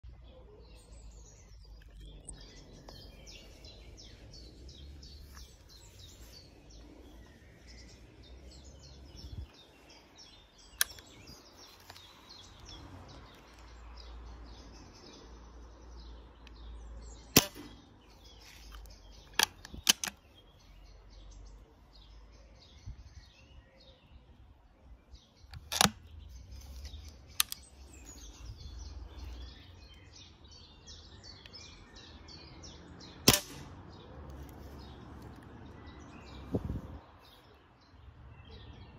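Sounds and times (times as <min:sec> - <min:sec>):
birds chirping: 0:00.0 - 0:38.9
air rifle cracks: 0:10.7 - 0:12.1, 0:17.3 - 0:17.8, 0:18.7 - 0:20.3, 0:25.5 - 0:26.1, 0:26.8 - 0:27.7, 0:33.3 - 0:33.8
light clicks: 0:10.8 - 0:13.7.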